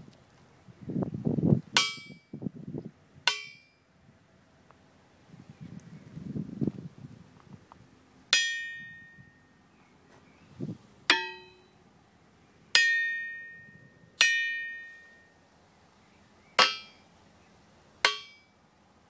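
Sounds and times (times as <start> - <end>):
hammer striking steel wheel: 1.8 - 2.3, 3.3 - 3.8, 8.3 - 9.4, 11.1 - 11.8, 12.7 - 15.3, 16.6 - 17.0, 18.0 - 18.5.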